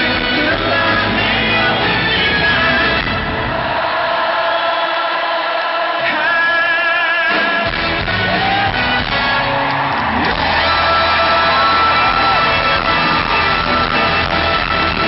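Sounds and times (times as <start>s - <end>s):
live pop band with bass: 0.0s - 3.7s, 7.3s - 15.0s.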